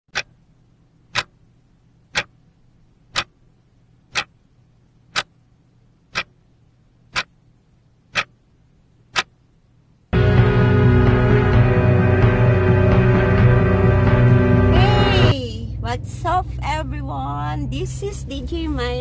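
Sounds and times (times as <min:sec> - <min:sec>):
clock ticking: 0:00.1 - 0:02.4, 0:03.1 - 0:03.4, 0:04.1 - 0:04.4, 0:05.1 - 0:05.4, 0:06.1 - 0:06.4, 0:07.1 - 0:07.4, 0:08.1 - 0:08.4, 0:09.1 - 0:09.4
faint low hum: 0:00.2 - 0:10.2.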